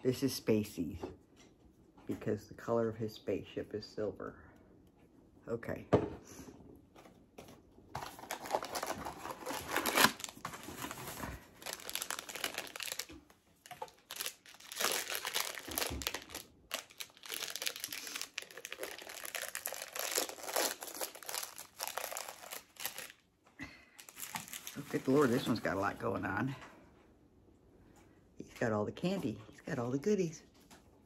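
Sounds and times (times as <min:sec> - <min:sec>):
plastic wrapping crinkling and tearing: 0:08.0 - 0:23.2, 0:24.0 - 0:25.8.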